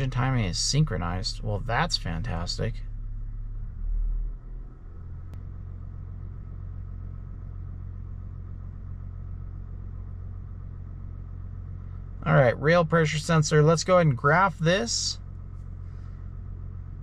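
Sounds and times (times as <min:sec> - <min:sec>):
diesel engine idling: 0:00.0 - 0:17.0.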